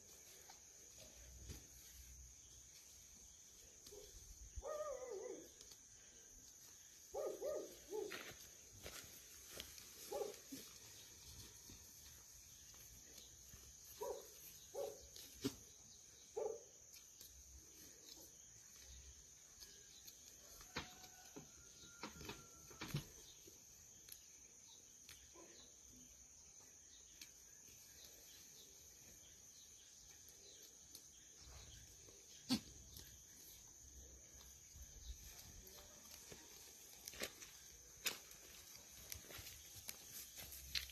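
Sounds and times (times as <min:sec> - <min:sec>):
goats grazing: 0:00.0 - 0:40.9
faint short goat calls: 0:32.4 - 0:32.7.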